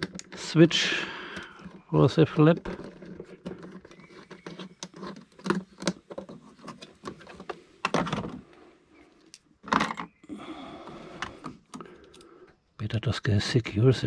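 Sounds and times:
plastic parts clicking and rattling: 0:00.0 - 0:08.5, 0:09.2 - 0:10.2, 0:11.2 - 0:12.3
knocks and scrapes: 0:01.4 - 0:08.7.

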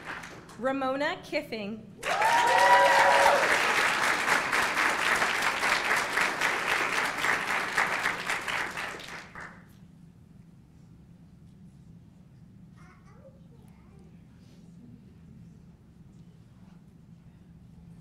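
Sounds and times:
audience applauding: 0:00.0 - 0:00.6, 0:02.0 - 0:09.6
audience cheering: 0:02.0 - 0:08.8.

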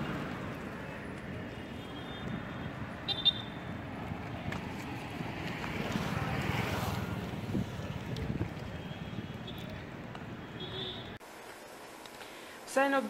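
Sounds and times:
wind buffeting microphone: 0:00.0 - 0:10.6
vehicle passing: 0:00.0 - 0:11.2
street traffic: 0:00.0 - 0:12.4.

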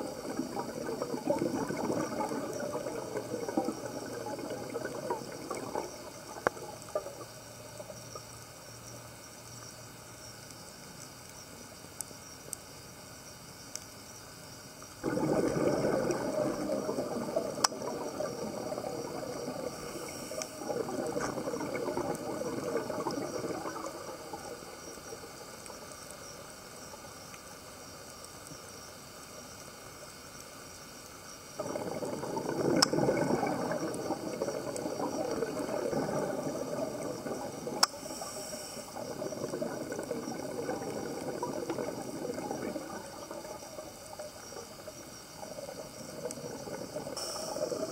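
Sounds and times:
underwater exhaled bubbles: 0:00.0 - 0:08.5, 0:15.0 - 0:27.7, 0:31.6 - 0:47.9.

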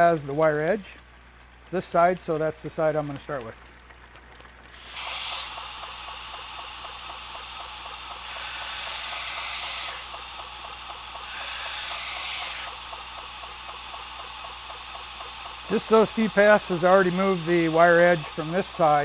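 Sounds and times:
belt grinder sharpening knife: 0:08.2 - 0:10.1, 0:11.2 - 0:12.8.

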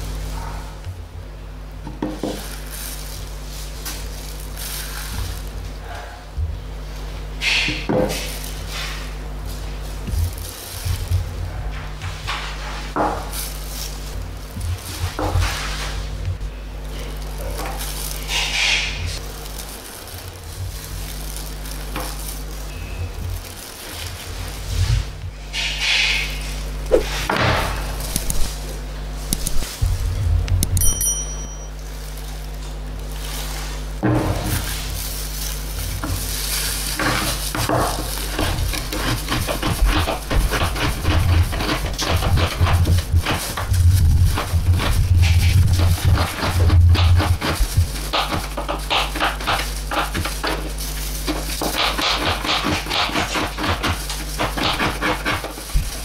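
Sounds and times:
steady low hum: 0:00.0 - 0:56.0
hissing rustle: 0:16.8 - 0:30.0
knife scraping on cutting board: 0:36.1 - 0:56.0
knife cutting strokes on plastic board: 0:37.0 - 0:56.0.

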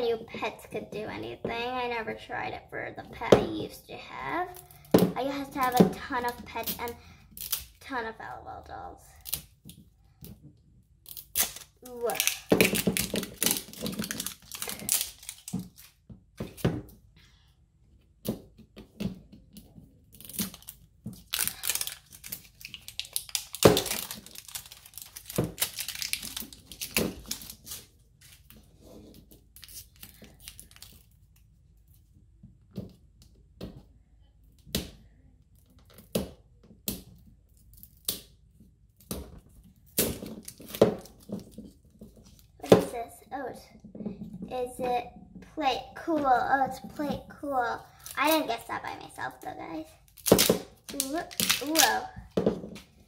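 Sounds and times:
wrapper ripping and crinkling: 0:11.1 - 0:16.0, 0:20.1 - 0:28.7, 0:29.4 - 0:31.4, 0:39.9 - 0:42.6, 0:50.0 - 0:53.0.

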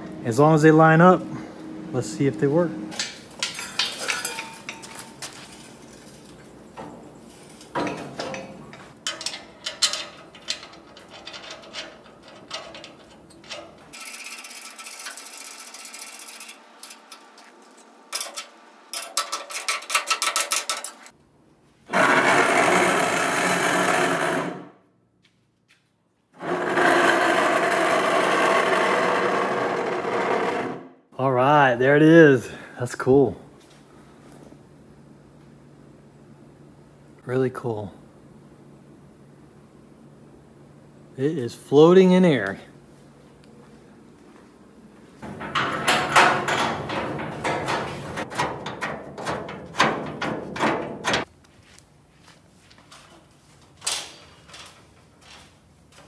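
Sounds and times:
metal tools knocking and clanking: 0:02.9 - 0:05.3, 0:07.7 - 0:14.2, 0:18.1 - 0:21.1, 0:45.2 - 0:51.3
machine whirring: 0:21.9 - 0:24.7.

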